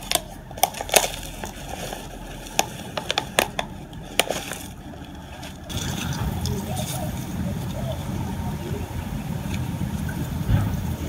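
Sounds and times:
hands working potting soil: 0:00.0 - 0:07.9
plastic pot crackling: 0:00.0 - 0:07.9.

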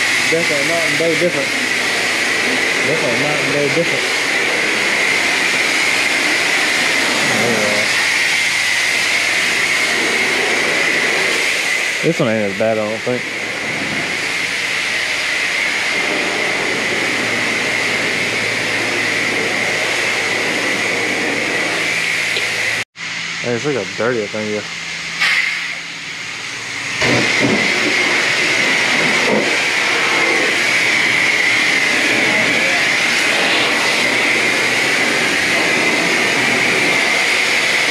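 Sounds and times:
high-pressure spray wand hissing: 0:00.0 - 0:22.8, 0:27.0 - 0:37.9.

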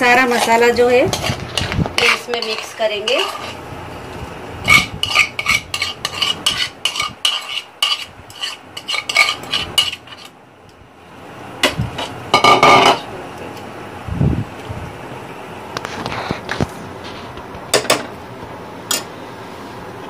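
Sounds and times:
spoon clinking and scraping plate: 0:01.1 - 0:03.6, 0:04.6 - 0:10.3
dishes clattering: 0:11.6 - 0:13.0.

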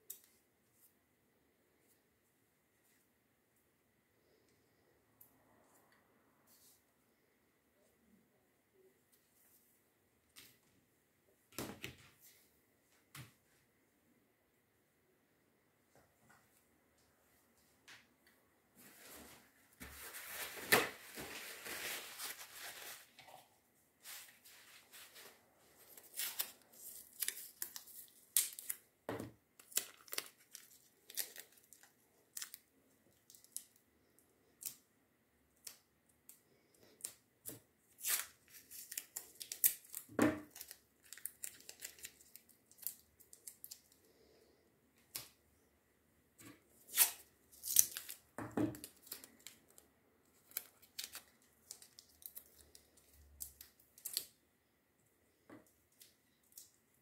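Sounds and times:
hands tearing and crumpling material: 0:24.1 - 0:28.8, 0:29.6 - 0:33.8, 0:38.0 - 0:44.0, 0:46.9 - 0:49.8, 0:50.4 - 0:54.4.

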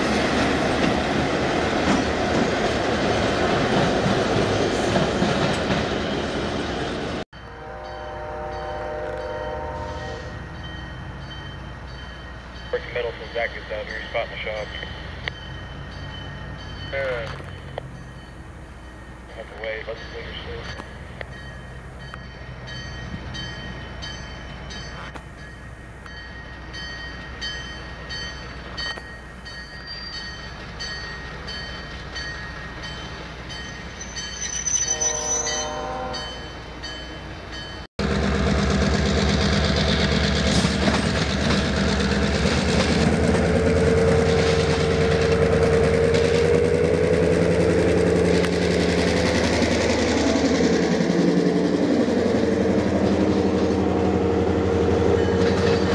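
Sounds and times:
diesel locomotive passing: 0:00.0 - 0:55.9
train horn blast: 0:07.4 - 0:10.4, 0:34.9 - 0:36.5
train bell ringing: 0:07.4 - 0:37.9, 0:55.0 - 0:55.9.

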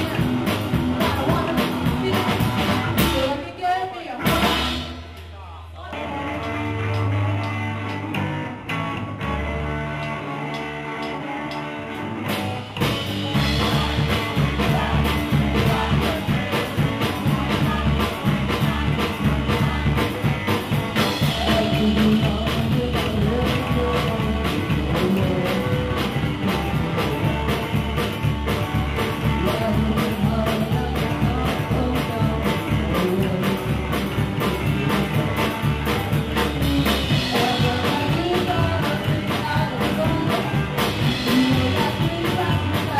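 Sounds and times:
upright double bass: 0:00.0 - 0:03.4, 0:04.2 - 0:42.9
woman singing: 0:00.0 - 0:04.9, 0:13.0 - 0:27.8, 0:29.4 - 0:33.8, 0:36.4 - 0:42.9
drum kit: 0:00.0 - 0:42.9
electric guitar: 0:00.0 - 0:42.9.

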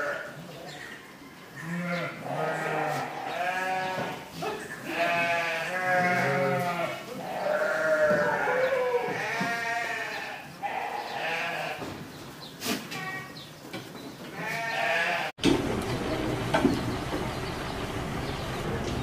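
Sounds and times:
goats bleating: 0:00.0 - 0:00.4, 0:01.6 - 0:11.9, 0:14.3 - 0:15.4.

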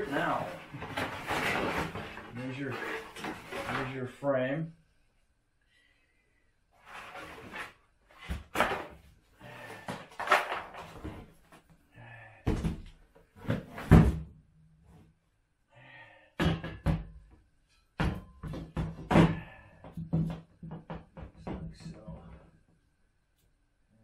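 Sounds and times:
cardboard rustling: 0:00.0 - 0:03.9.

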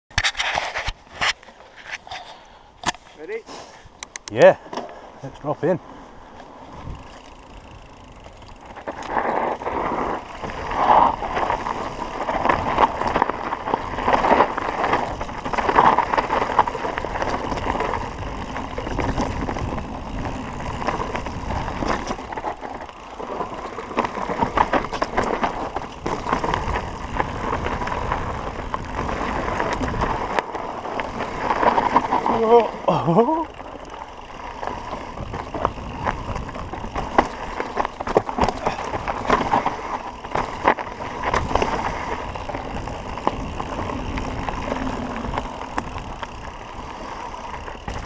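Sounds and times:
bike tyre rumble on dirt: 0:00.3 - 0:48.0
bike rattles and knocks: 0:06.4 - 0:48.0.

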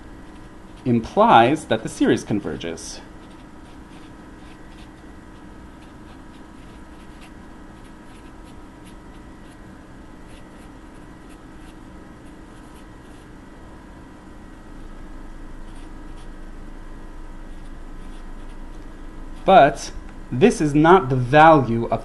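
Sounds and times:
steady low hum: 0:00.0 - 0:22.0
marker pen scratching on paper: 0:03.2 - 0:09.6, 0:10.2 - 0:13.3, 0:15.7 - 0:16.3.

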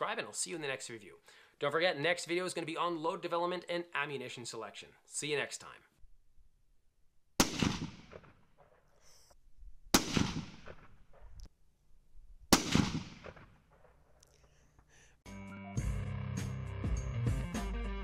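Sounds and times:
rifle shots: 0:07.4 - 0:08.9, 0:09.9 - 0:11.3, 0:12.5 - 0:14.0.

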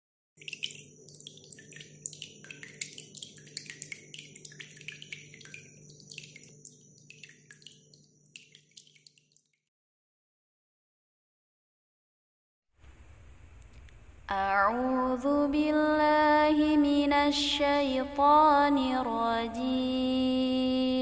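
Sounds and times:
water dripping and splashing: 0:00.4 - 0:09.7.

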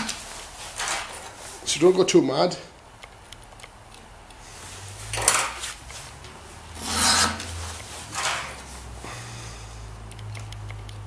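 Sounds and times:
file rasping on chain tooth: 0:06.8 - 0:07.5.

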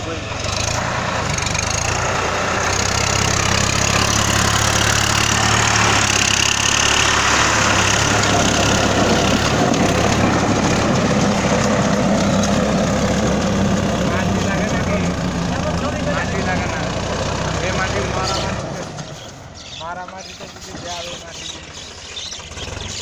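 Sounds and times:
tiller churning soil: 0:00.0 - 0:23.0
tractor diesel engine: 0:00.0 - 0:23.0.

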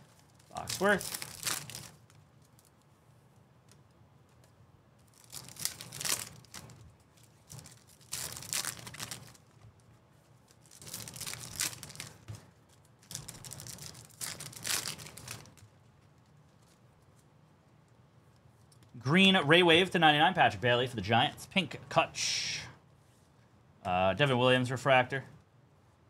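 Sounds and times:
card pack wrappers tearing and crinkling: 0:00.0 - 0:02.8, 0:05.0 - 0:16.8.

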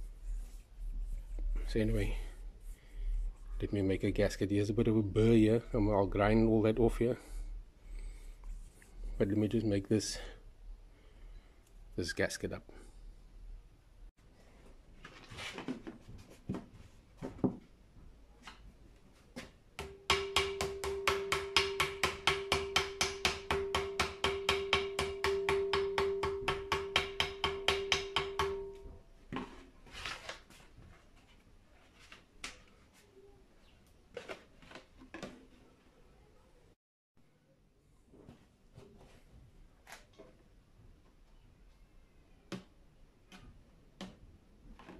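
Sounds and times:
small hammer tapping on metal: 0:19.8 - 0:28.9.

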